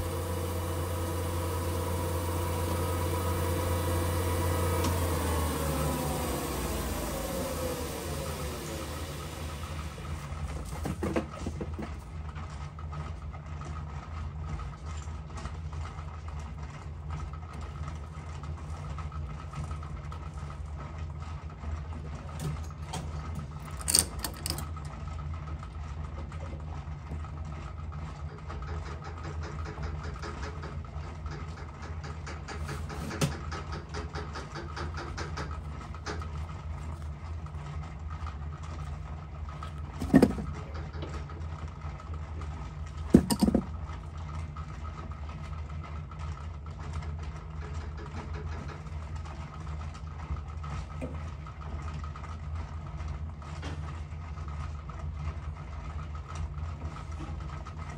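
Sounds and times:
workshop machinery humming: 0.0 - 12.4, 22.2 - 25.0, 28.6 - 41.5, 43.0 - 44.0.

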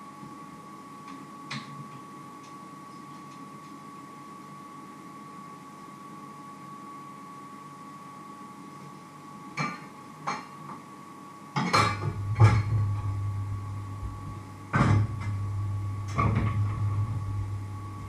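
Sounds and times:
low hum: 11.8 - 18.0.

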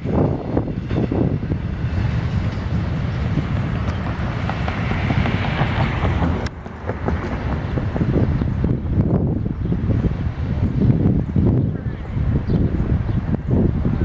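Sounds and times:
diesel locomotive rumble: 0.0 - 14.0
wind buffeting microphone: 0.0 - 14.0.

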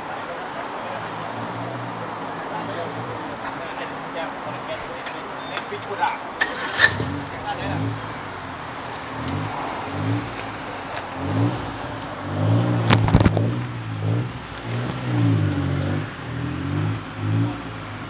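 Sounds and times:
engine revving while driving: 6.4 - 18.0.

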